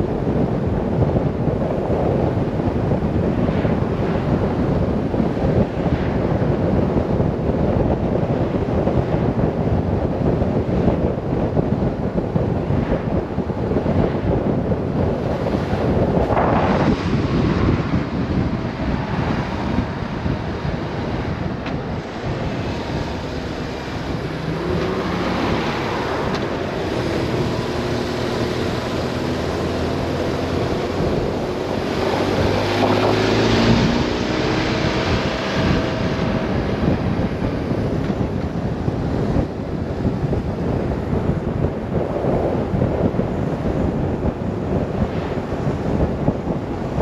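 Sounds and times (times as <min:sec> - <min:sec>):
wind noise on microphone: 0:00.0 - 0:47.0
motorcycle engine accelerating: 0:14.0 - 0:43.1.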